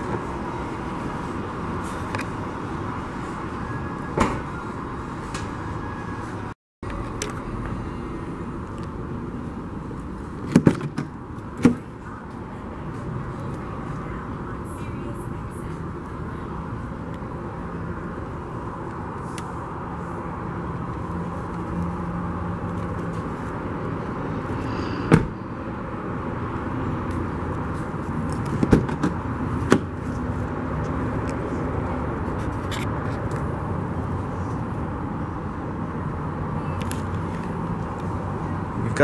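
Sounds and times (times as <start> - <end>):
car door shutting thump: 25.1 - 25.4.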